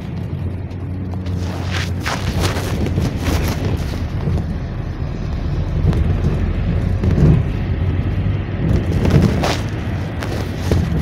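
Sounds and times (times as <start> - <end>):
minibus engine and road noise: 0.0 - 11.0.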